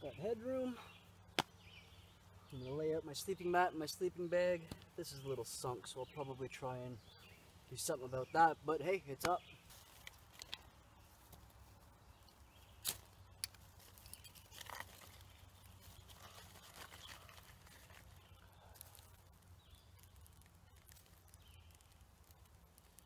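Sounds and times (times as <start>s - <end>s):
sticks rustling on leaf litter: 9.6s - 23.0s.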